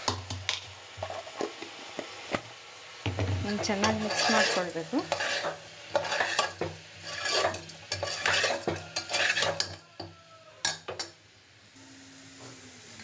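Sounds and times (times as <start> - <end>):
light sizzle: 0.0 - 13.0
metal ladle scraping a pot: 3.5 - 9.8.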